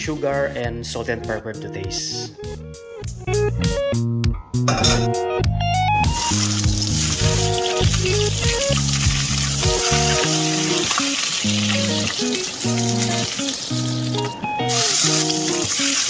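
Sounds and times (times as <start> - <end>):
background music: 0.0 - 16.0
chicken sizzling in hot oil: 6.0 - 16.0.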